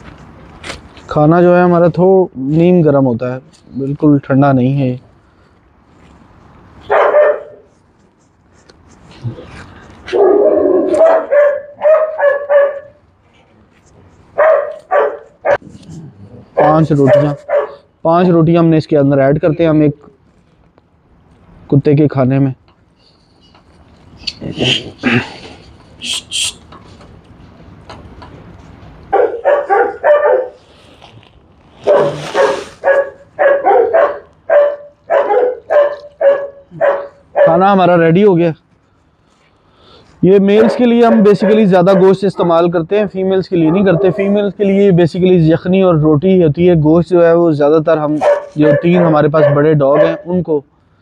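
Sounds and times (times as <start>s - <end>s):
dog barking: 6.9s - 7.7s, 10.1s - 13.0s, 14.4s - 15.7s, 16.6s - 17.9s, 29.1s - 30.6s, 31.8s - 37.7s, 40.6s - 42.2s, 43.6s - 44.4s, 48.2s - 50.4s.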